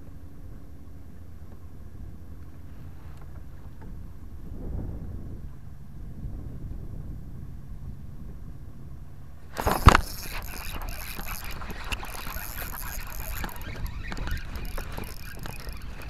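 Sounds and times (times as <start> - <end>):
rustling and scraping: 9.5 - 16.0
spinning reel clicks: 9.6 - 16.0.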